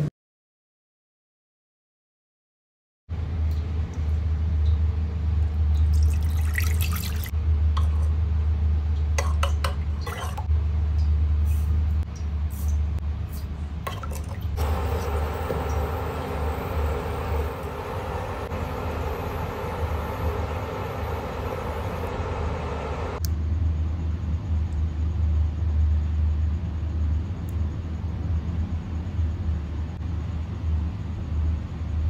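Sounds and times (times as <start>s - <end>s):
low hum: 14.6s - 23.3s.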